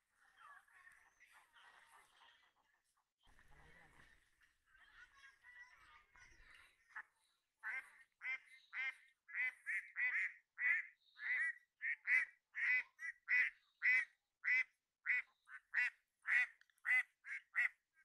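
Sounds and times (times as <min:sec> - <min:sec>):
ducks quacking: 0:05.8 - 0:18.0.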